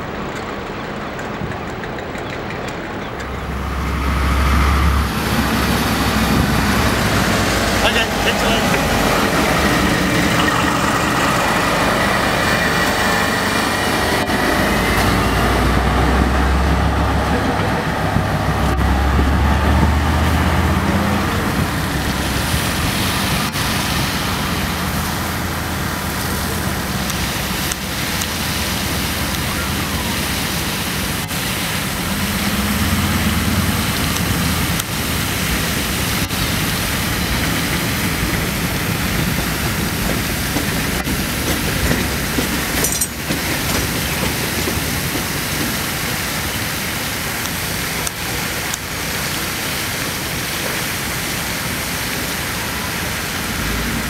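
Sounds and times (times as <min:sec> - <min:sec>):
wheels clicking over rail joints: 0:00.0 - 0:07.8, 0:33.6 - 0:49.2
locomotive engine drone: 0:00.0 - 0:54.0
water jetting hiss: 0:00.1 - 0:54.0.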